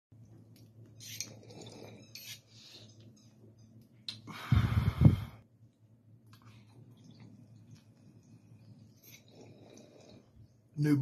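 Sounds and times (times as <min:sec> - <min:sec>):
breathy exhale: 0:04.3 - 0:05.4.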